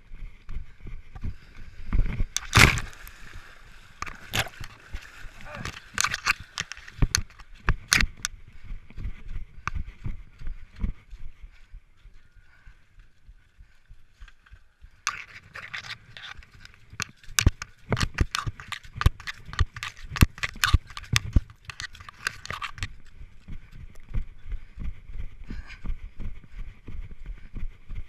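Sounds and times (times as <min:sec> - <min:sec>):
knocks and scrapes on camera: 0:05.5 - 0:08.3, 0:15.1 - 0:23.0
runner panting heavily: 0:08.4 - 0:14.6, 0:23.4 - 0:28.0.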